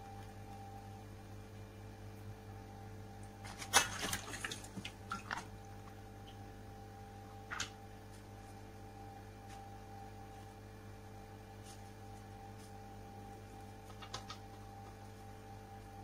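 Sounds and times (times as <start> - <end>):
water splashing in a basin: 3.5 - 5.5.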